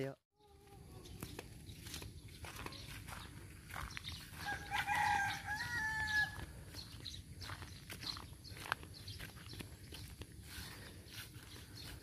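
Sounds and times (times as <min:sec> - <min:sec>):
rooster crowing: 0:04.3 - 0:06.5.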